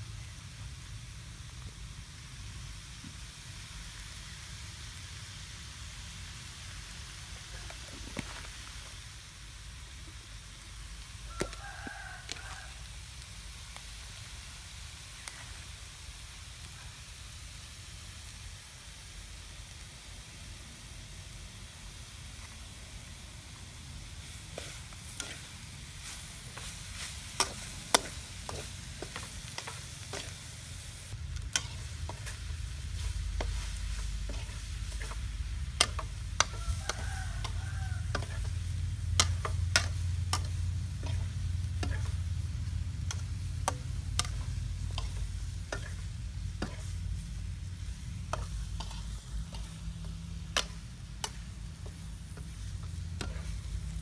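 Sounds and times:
light sizzle: 0.0s - 54.0s
low steady rumble: 22.8s - 54.0s
metal spatula scraping metal pan: 24.6s - 25.5s, 33.0s - 38.6s, 39.2s - 42.2s, 53.2s - 53.6s.

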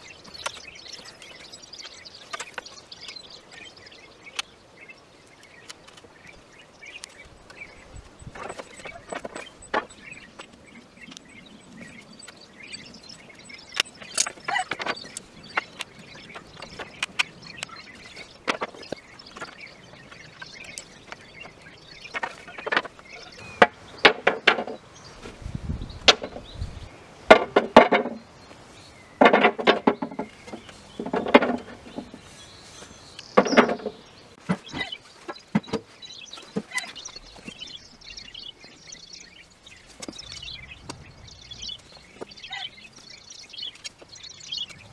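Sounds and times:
birds chirping: 0.0s - 44.9s
wooden slats knocking: 23.6s - 24.8s, 27.3s - 28.2s, 29.2s - 32.2s, 33.4s - 34.6s.

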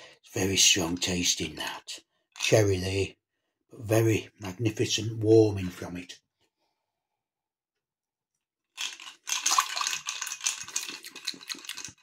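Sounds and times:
ice cubes clinking in a glass: 8.8s - 12.0s.

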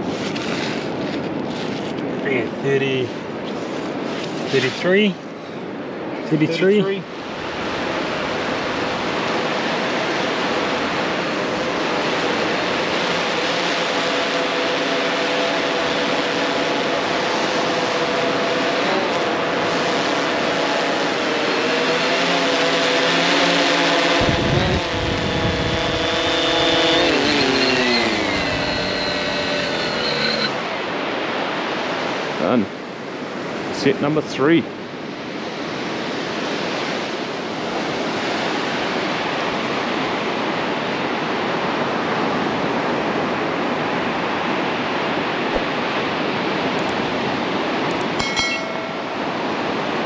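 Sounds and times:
prop wash rushing on microphone: 6.3s - 30.7s
drone rotors whining: 10.1s - 30.9s.

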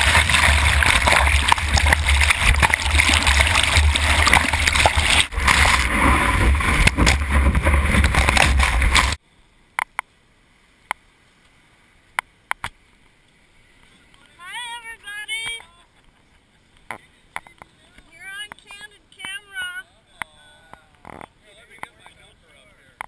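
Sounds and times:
water rushing and splashing: 0.0s - 9.2s.

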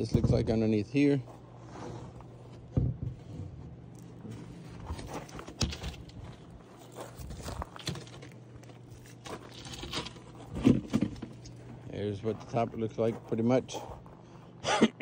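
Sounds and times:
wooden board knocks and scrapes: 2.7s - 3.8s, 9.8s - 11.4s
footsteps on gravel: 3.9s - 14.6s.

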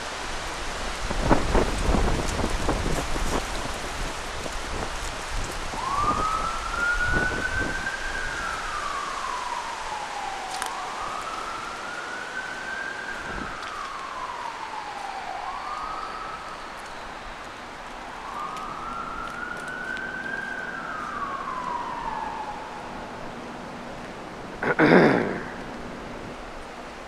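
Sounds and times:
wind rumbling on microphone: 0.0s - 27.0s
siren wailing: 5.5s - 24.6s, 25.3s - 26.8s.

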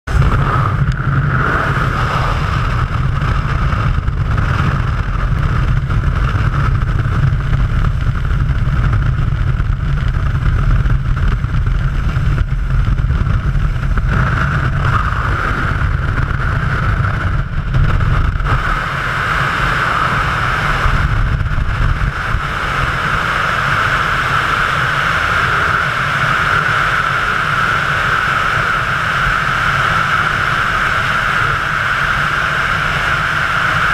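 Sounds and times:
wind rushing: 0.1s - 32.2s.

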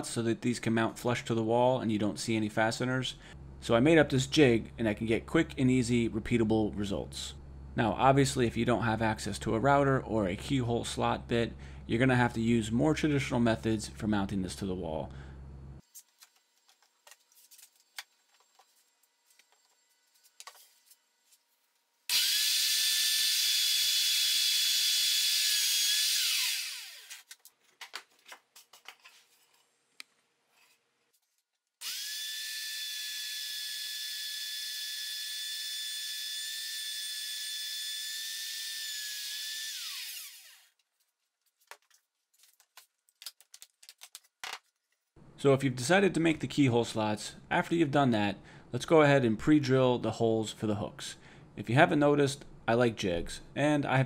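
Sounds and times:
router motor cutting wood: 22.1s - 27.2s, 31.8s - 40.8s.

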